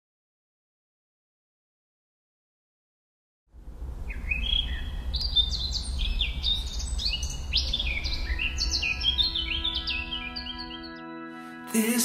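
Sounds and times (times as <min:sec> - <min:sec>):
many small birds chirping: 0:04.1 - 0:11.0
music: 0:08.3 - 0:12.0.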